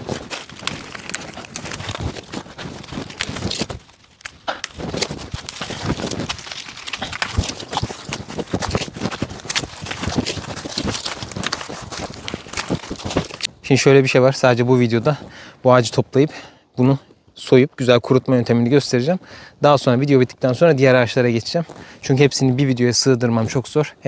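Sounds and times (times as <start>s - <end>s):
twigs snapping: 0.0s - 13.5s
leaves rustling: 0.0s - 15.4s, 19.6s - 23.9s.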